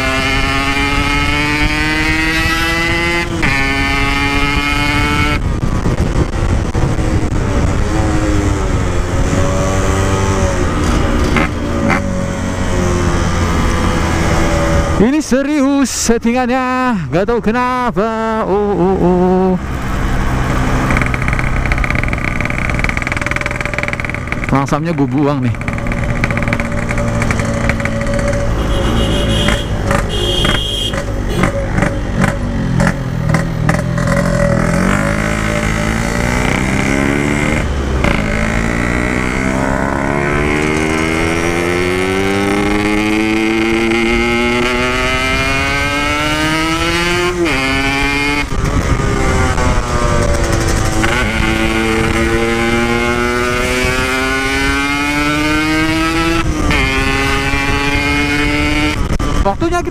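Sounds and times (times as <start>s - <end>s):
two-stroke motorcycle engine revving: 0.0s - 15.1s, 18.5s - 59.9s
person speaking: 15.0s - 19.7s, 24.4s - 25.7s, 59.4s - 59.9s.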